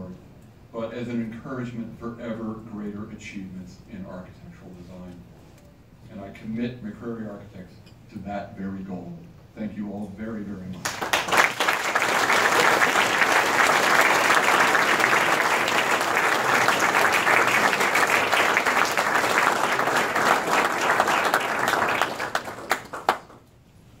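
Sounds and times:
audience applauding: 10.8 - 23.4.

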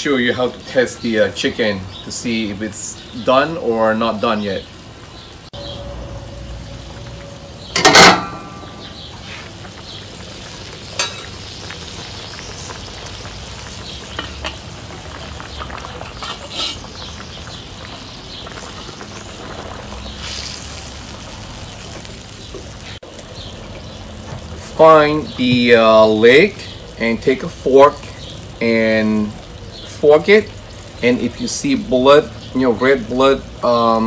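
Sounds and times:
liquid bubbling and sizzling in wok: 4.6 - 28.6
metal lid clanking: 5.6 - 9.1, 11.0 - 11.3.

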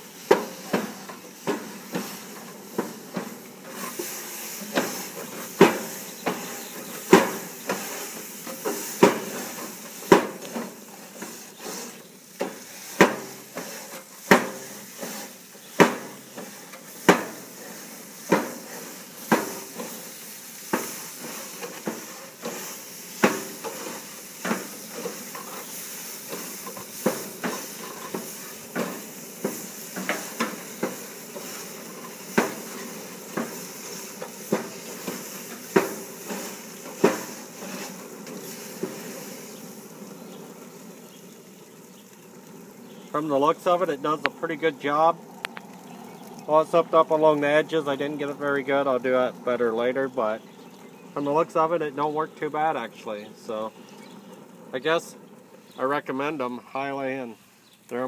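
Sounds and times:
brush scraping grill bars: 0.0 - 45.8
steam hissing: 0.0 - 58.0.

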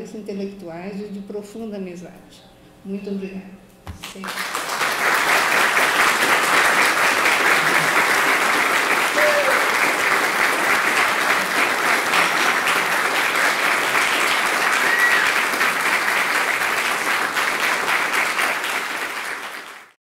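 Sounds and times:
audience applauding: 4.1 - 20.0.

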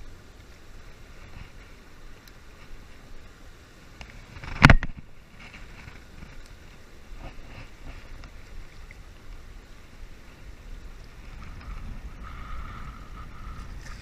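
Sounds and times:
wind buffeting microphone: 4.3 - 14.0.

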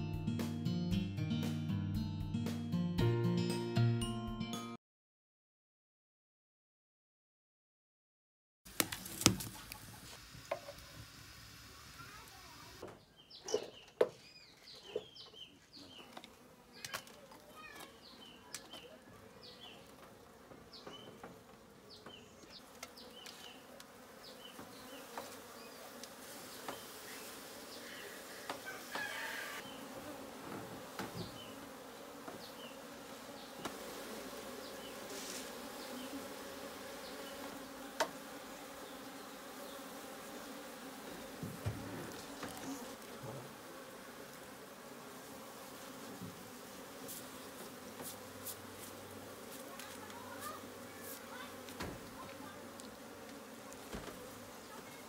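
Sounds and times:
birds chirping: 12.1 - 30.0, 31.0 - 33.7, 34.5 - 35.1, 35.7 - 37.9, 38.5 - 40.0
bees buzzing: 15.0 - 55.0.

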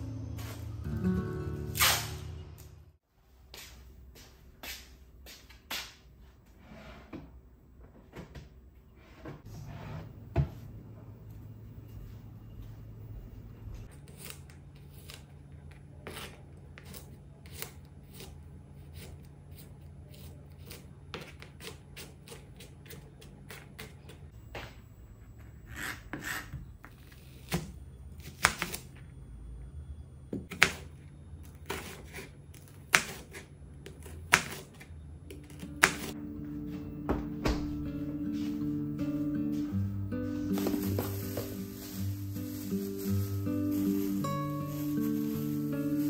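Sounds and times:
knife slicing onion: 16.0 - 24.2, 30.5 - 36.2.

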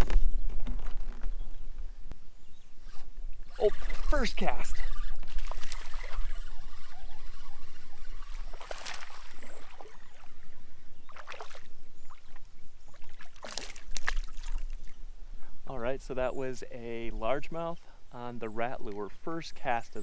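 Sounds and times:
fish splashing at water surface: 8.4 - 10.3, 13.0 - 14.9.

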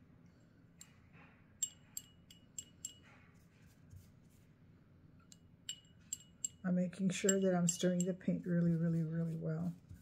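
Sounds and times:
paintbrush clinking against glass jar: 1.6 - 3.2, 5.3 - 8.4.

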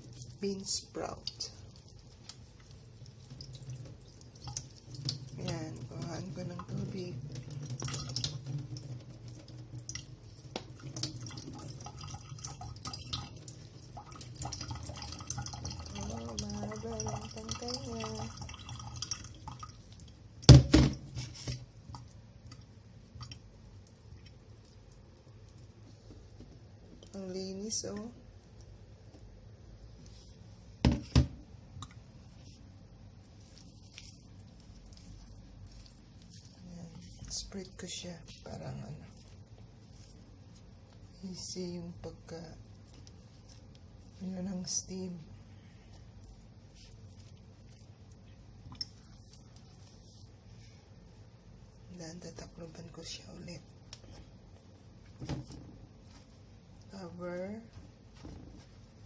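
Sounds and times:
water dripping into metal sink: 1.1 - 21.1, 21.8 - 25.5
plastic colander knocking: 20.5 - 21.1, 30.8 - 31.4.

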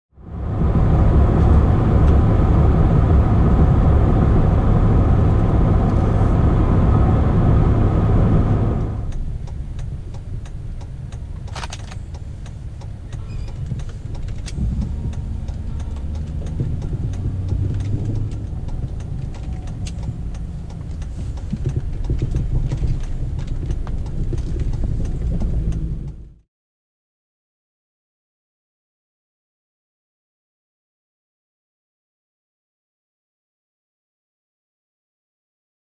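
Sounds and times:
truck engine and road noise: 0.1 - 26.4.

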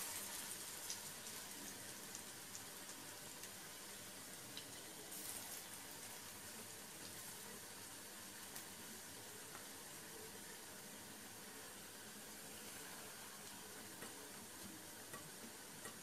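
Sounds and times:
oil crackles and pops: 0.0 - 8.8
food sizzling in hot oil: 0.0 - 16.0.

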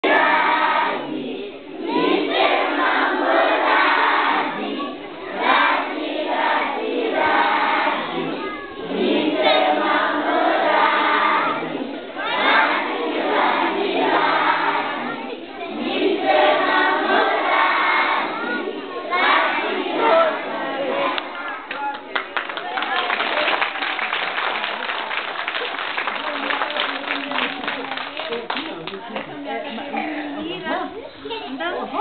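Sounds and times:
children singing in unison: 0.0 - 21.4.

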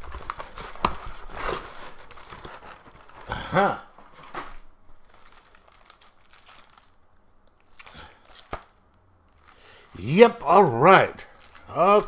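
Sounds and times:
packing rustling: 0.0 - 3.3, 4.0 - 7.0, 7.7 - 10.0, 11.3 - 12.0.

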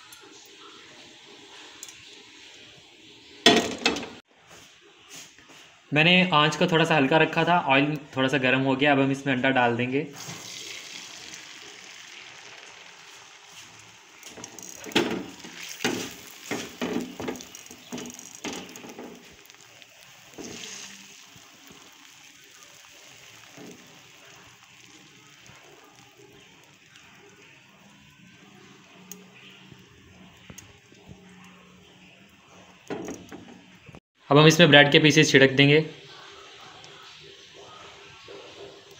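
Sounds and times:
egg sizzling in oil: 0.0 - 4.3, 10.1 - 34.0, 35.9 - 38.9
pan knocking on stove grate: 14.3 - 19.3.

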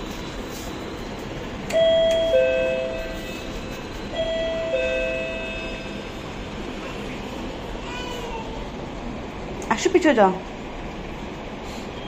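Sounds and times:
two-tone doorbell chime: 1.7 - 3.4, 4.1 - 6.1.

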